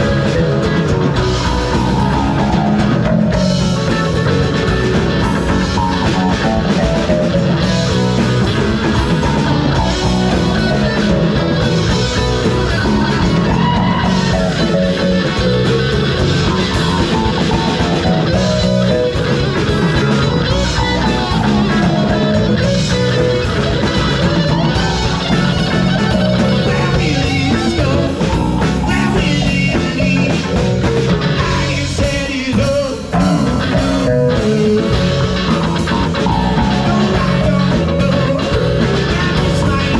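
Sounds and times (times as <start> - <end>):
folk rock band playing: 0.0 - 39.9
guitar: 0.0 - 39.9
person singing: 24.2 - 39.9.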